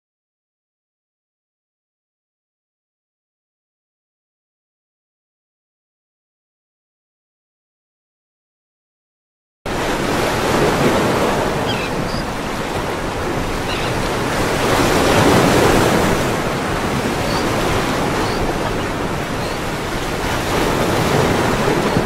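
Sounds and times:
ocean waves washing in: 9.7 - 22.0.

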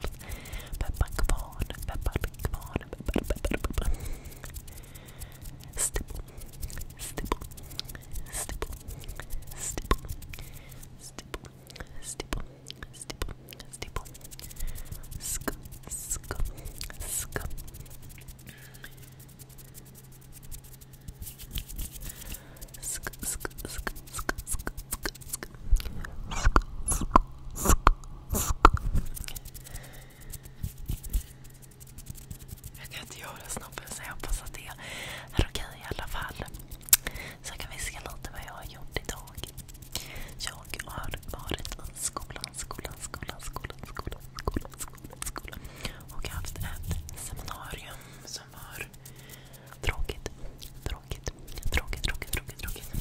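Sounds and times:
asmr mouth clicks and pops: 0.8 - 4.6, 5.5 - 10.5, 22.7 - 29.4, 35.9 - 38.5, 39.4 - 47.5
hands flicking at microphone: 4.4 - 11.0, 13.8 - 25.4, 28.6 - 34.4
mouth clicks and pops: 9.6 - 10.4, 23.0 - 29.4, 36.8 - 37.1.

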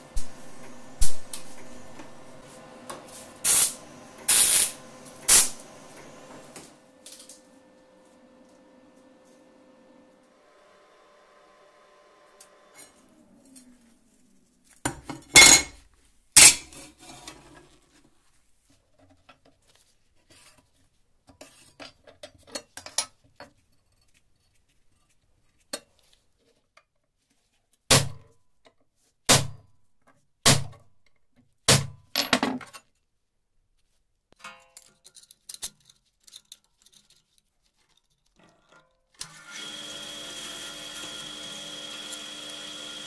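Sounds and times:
metal tools clattering on workbench: 14.9 - 15.8, 16.4 - 17.4, 32.2 - 33.0.

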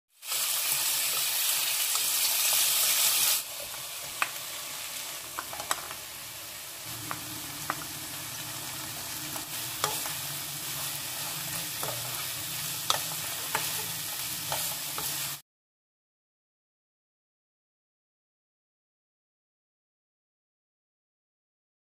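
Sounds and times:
food sizzling in a frying pan: 0.1 - 15.4.

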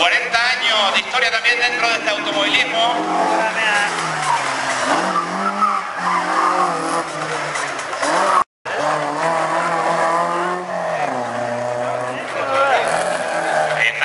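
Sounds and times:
rally car engine revving: 1.5 - 14.0
tyres squealing: 1.7 - 8.4.

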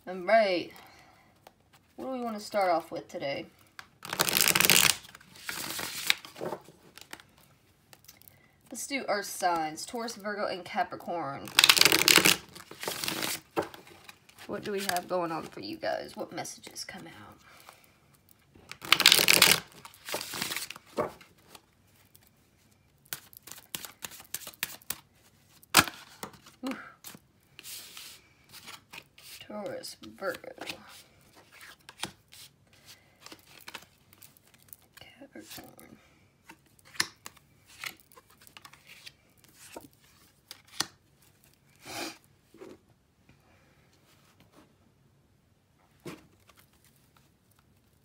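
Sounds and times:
cards riffle shuffled: 4.0 - 7.3, 11.4 - 15.0, 18.7 - 21.6, 23.1 - 25.0, 30.3 - 34.6, 36.4 - 41.0.

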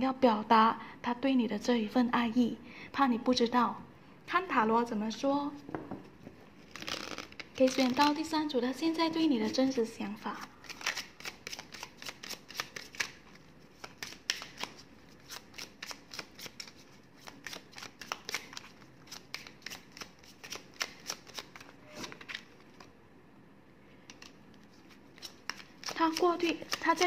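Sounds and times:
cards being shuffled by hand: 5.9 - 8.3, 9.2 - 22.9, 24.0 - 27.0.

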